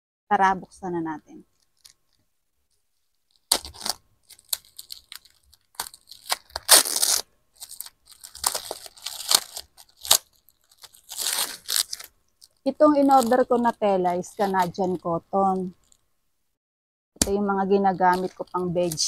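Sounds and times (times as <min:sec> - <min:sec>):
plastic wrapping crinkling: 0:01.5 - 0:16.1, 0:17.7 - 0:19.0
scissors cutting plastic tape: 0:03.4 - 0:12.1, 0:17.2 - 0:19.0.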